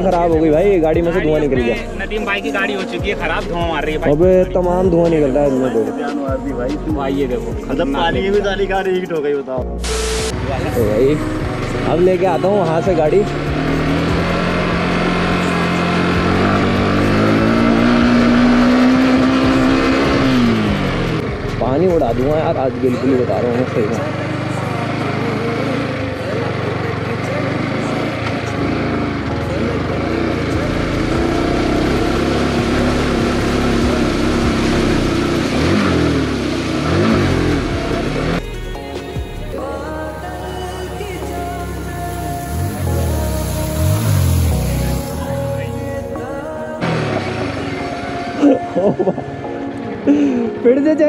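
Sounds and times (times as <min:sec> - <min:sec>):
motorcycle engine revving: 0:09.8 - 0:49.4.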